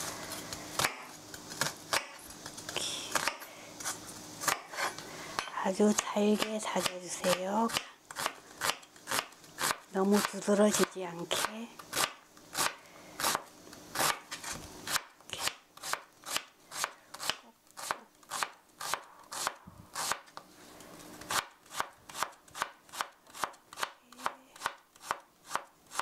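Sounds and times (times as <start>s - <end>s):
knife chopping on cutting board: 21.3s - 26.0s.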